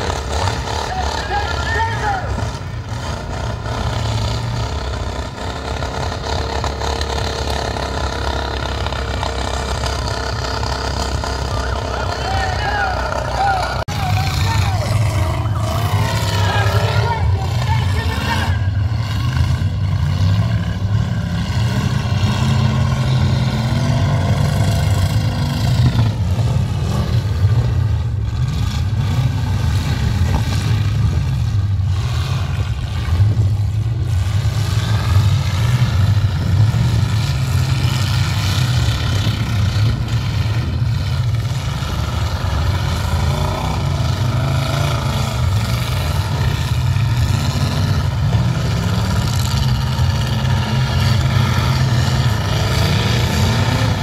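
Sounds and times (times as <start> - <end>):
car and truck engines revving: 0.0 - 54.0.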